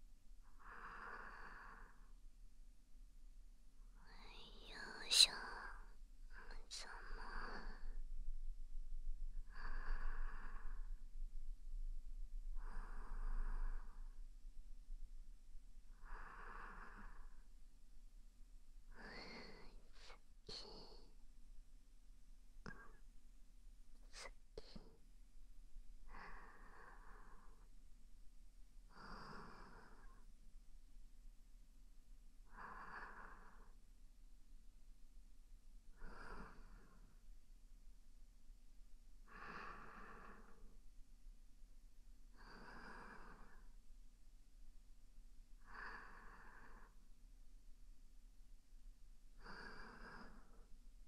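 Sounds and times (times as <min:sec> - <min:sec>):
slow breathing: 0:00.4 - 0:02.2, 0:03.9 - 0:14.6, 0:15.8 - 0:17.6, 0:18.9 - 0:21.2, 0:26.0 - 0:27.8, 0:28.9 - 0:30.3, 0:32.4 - 0:33.8, 0:35.9 - 0:37.3, 0:39.2 - 0:40.8, 0:42.3 - 0:43.8, 0:45.6 - 0:47.2, 0:49.3 - 0:50.8.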